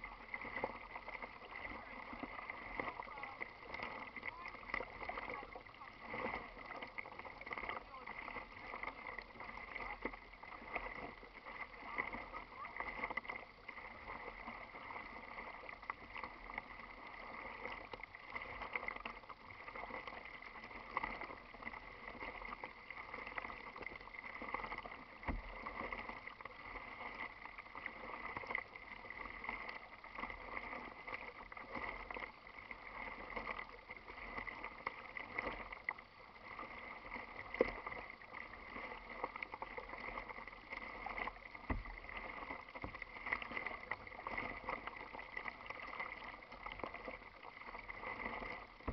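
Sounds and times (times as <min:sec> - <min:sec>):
paddle splashes: 0:00.0 - 0:48.9
waves lapping against kayak hull: 0:00.0 - 0:48.9.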